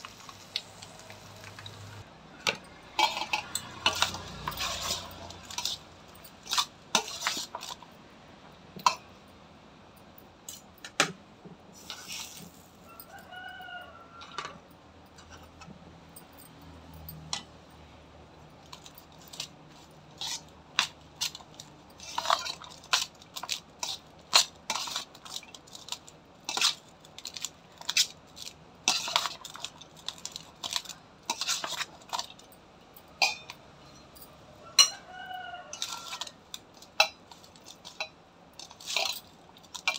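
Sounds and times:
spoon scraping steel bowl: 0:02.5 - 0:07.9, 0:11.8 - 0:13.5, 0:18.6 - 0:32.4, 0:34.8 - 0:39.9
faint rooster crowing: 0:12.8 - 0:14.7, 0:34.4 - 0:36.5.

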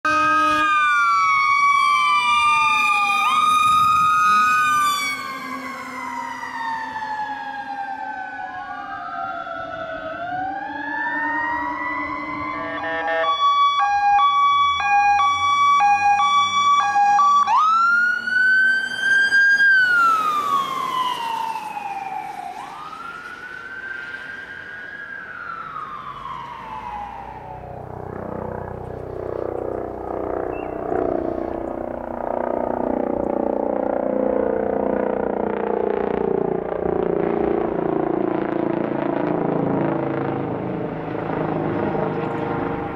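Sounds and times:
ambulance siren: 0:00.0 - 0:42.9
fire engine sirens wailing: 0:00.0 - 0:42.9.

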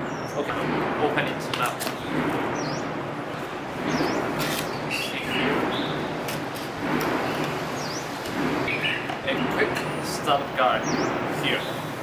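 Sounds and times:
bird chirps: 0:02.0 - 0:03.0, 0:03.8 - 0:06.1, 0:07.7 - 0:09.1, 0:09.8 - 0:11.9.

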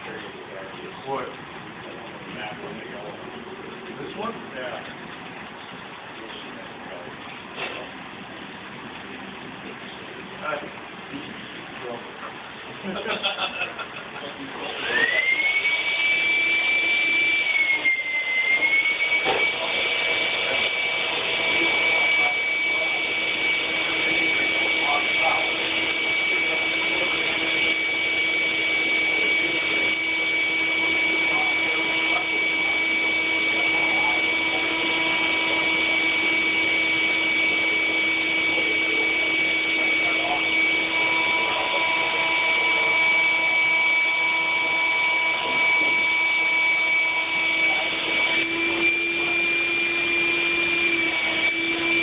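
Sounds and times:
model train electric whine: 0:14.6 - 0:52.0.

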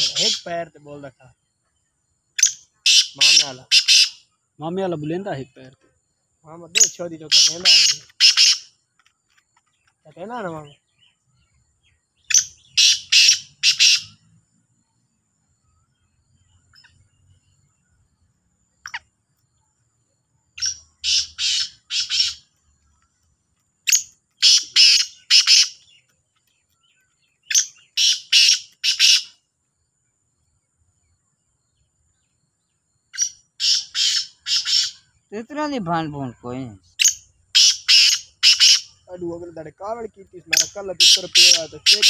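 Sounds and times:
francolins calling harsh notes: 0:00.0 - 0:01.4, 0:02.2 - 0:05.8, 0:06.4 - 0:08.9, 0:10.0 - 0:14.3, 0:20.5 - 0:22.6, 0:23.8 - 0:26.1, 0:26.9 - 0:29.4, 0:33.0 - 0:42.0.

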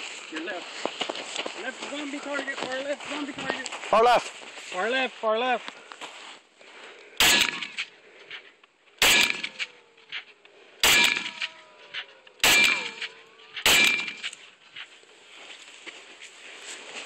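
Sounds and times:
rifle shots: 0:07.2 - 0:07.9, 0:09.0 - 0:10.2, 0:10.8 - 0:14.4.

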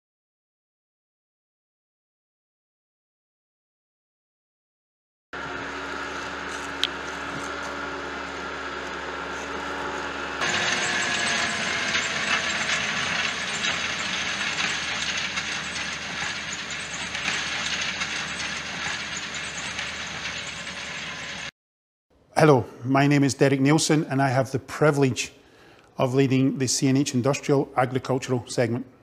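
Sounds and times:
tractor engine hum: 0:05.4 - 0:21.5.

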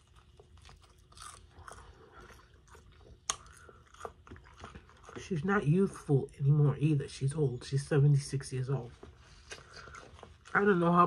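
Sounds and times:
person chewing chicken wing: 0:00.0 - 0:05.6.

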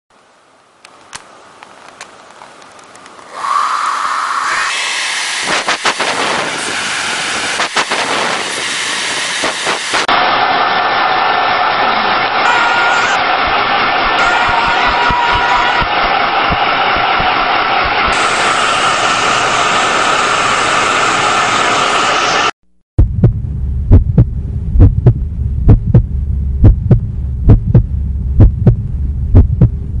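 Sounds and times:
sharp crackles: 0:00.8 - 0:03.3
low hum: 0:03.2 - 0:30.0
hair dryer blowing: 0:03.3 - 0:22.5
heartbeat thumps: 0:13.4 - 0:18.1, 0:23.0 - 0:30.0.

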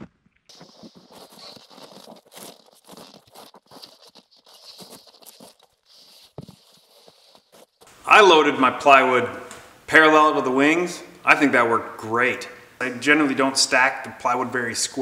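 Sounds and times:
footsteps crunching on snow: 0:00.5 - 0:08.0
plywood sheets handled: 0:00.5 - 0:08.0.

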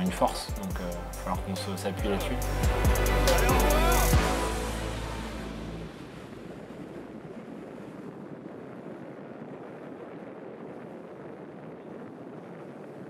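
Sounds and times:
background music: 0:00.0 - 0:06.4
wind on microphone: 0:05.1 - 0:13.0.

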